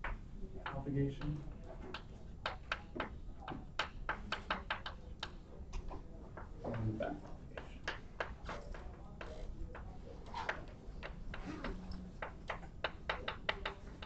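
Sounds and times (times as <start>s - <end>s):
chalk tapping on blackboard: 0.0s - 14.0s.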